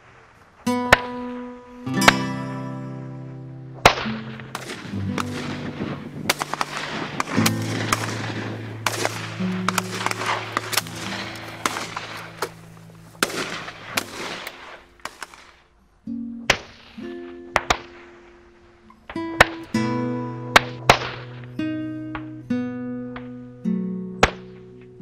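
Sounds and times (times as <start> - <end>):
guitar music: 0.6 - 15.4, 16.0 - 25.0
shotguns firing: 2.0 - 2.4, 3.8 - 15.7, 16.5 - 21.5.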